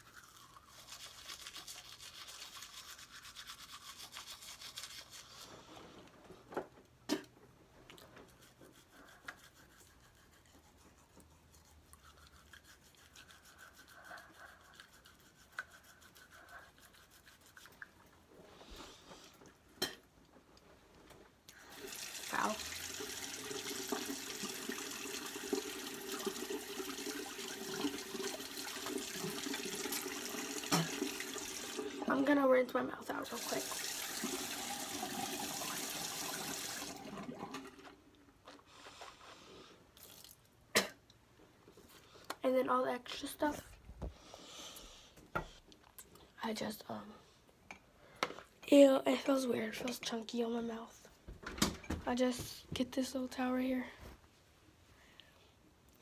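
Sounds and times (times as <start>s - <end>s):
toothbrush scrubbing teeth: 0.0s - 5.8s, 7.9s - 19.6s, 21.5s - 36.8s
sink tap running: 21.7s - 32.0s, 33.3s - 37.8s.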